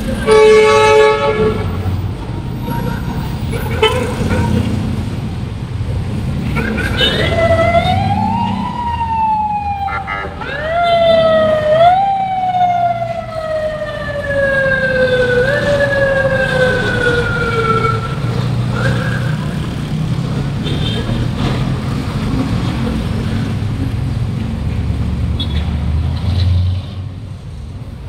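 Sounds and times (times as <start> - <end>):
street traffic: 0.0 - 28.0
emergency vehicle siren: 6.8 - 19.7.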